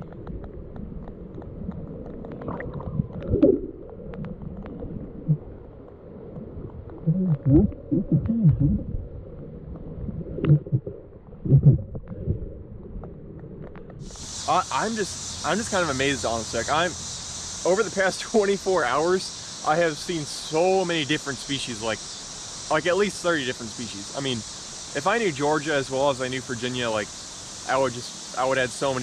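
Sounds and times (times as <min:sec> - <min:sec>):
low underwater rumble: 0:00.0 - 0:17.6
muffled voice underwater: 0:07.0 - 0:09.0, 0:10.5 - 0:12.0.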